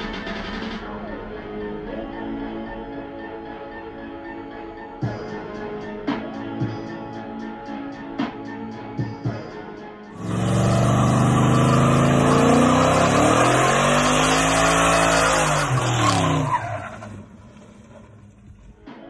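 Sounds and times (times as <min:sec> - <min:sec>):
tyres squealing: 0:10.2 - 0:17.4
car engine revving: 0:10.2 - 0:18.8.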